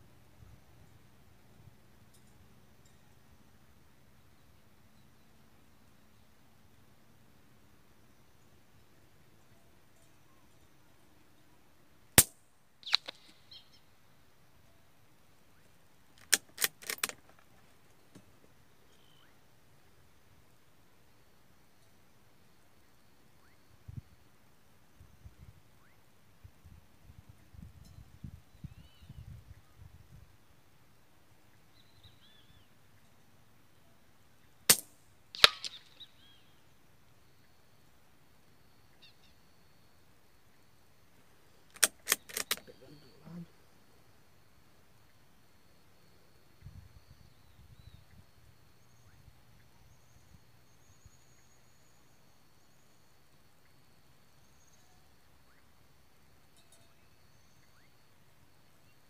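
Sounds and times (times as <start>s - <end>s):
rifle shot: 12.2s - 13.4s, 34.7s - 36.0s
small sharp sounds: 12.2s - 13.8s, 16.2s - 18.3s, 34.7s - 36.2s, 41.5s - 43.5s
metallic clicks: 16.2s - 17.5s, 41.7s - 42.8s.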